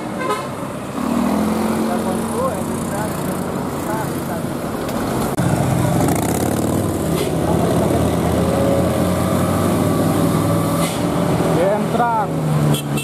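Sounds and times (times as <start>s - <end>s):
traffic engines passing: 0.0s - 13.0s.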